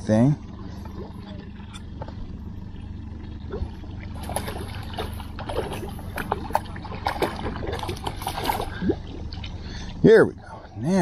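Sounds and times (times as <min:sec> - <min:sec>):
steady low hum: 0:00.0 - 0:11.0
fish splashing at water surface: 0:03.3 - 0:10.0.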